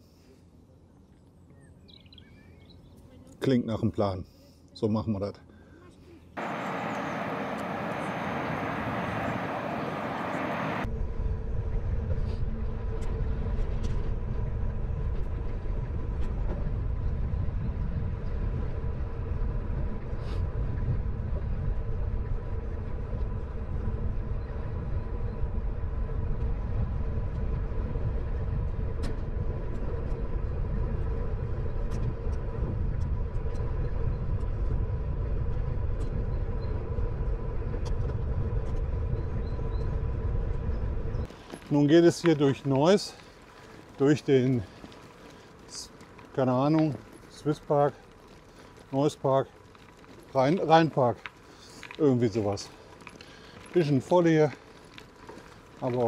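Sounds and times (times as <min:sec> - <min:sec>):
wind buffeting microphone: 0:06.4 - 0:47.3
bicycle tyre rumble: 0:06.4 - 0:56.0.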